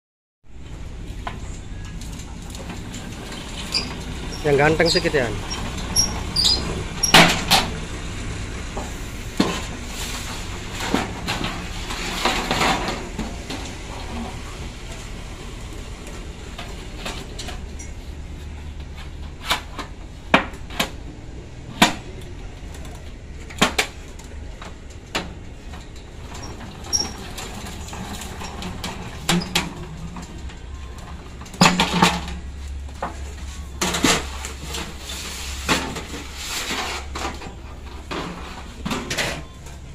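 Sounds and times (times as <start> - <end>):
metallic clanks and knocks: 25.1 - 39.9.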